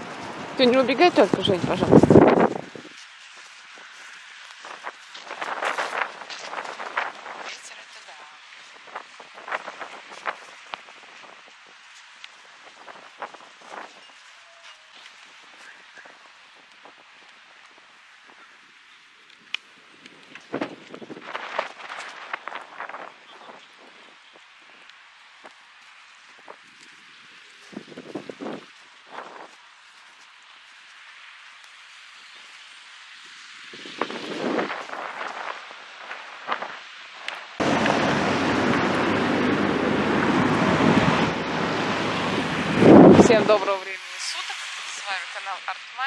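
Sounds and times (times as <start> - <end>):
wind buffeting microphone: 0.0 - 3.0, 19.4 - 24.8, 26.4 - 29.6, 33.4 - 36.9, 37.5 - 43.8.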